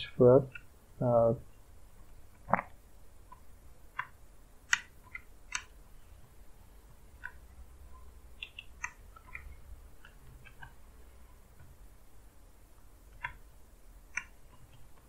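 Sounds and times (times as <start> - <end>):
computer keyboard keystrokes: 4.7 - 5.8.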